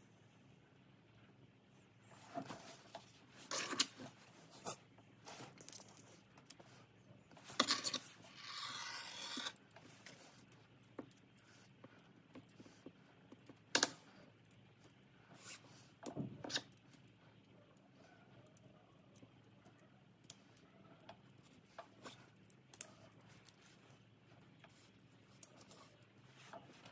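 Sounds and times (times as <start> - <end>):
scraping rub: 7.3 - 10.5.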